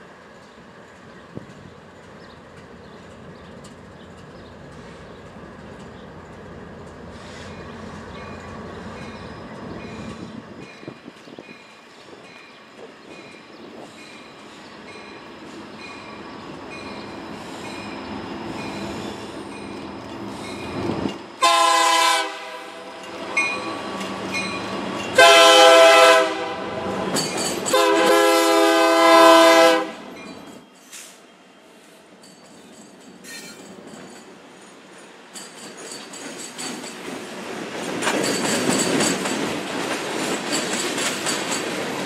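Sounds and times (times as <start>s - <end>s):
freight train rumble: 0.0s - 42.0s
locomotive air horn blasts: 21.4s - 23.0s, 25.2s - 30.1s.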